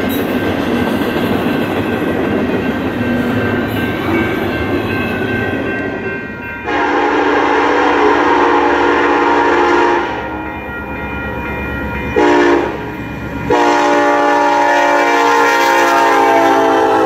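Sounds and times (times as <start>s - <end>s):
train rumbling: 0.0s - 17.0s
locomotive air horn chord: 6.7s - 10.5s, 12.2s - 12.9s, 13.5s - 17.0s.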